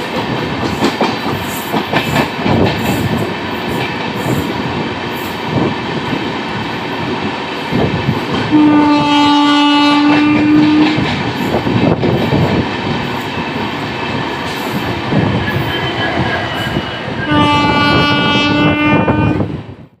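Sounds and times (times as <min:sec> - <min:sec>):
train wheels clattering over rails: 0:00.0 - 0:18.6
locomotive horn blast: 0:08.5 - 0:11.0, 0:15.6 - 0:19.5.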